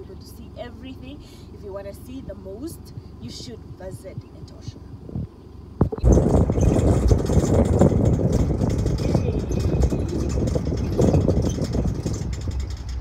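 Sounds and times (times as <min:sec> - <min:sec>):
vehicle engine running: 0:00.0 - 0:13.0
tyres rumbling on gravel: 0:04.9 - 0:13.0.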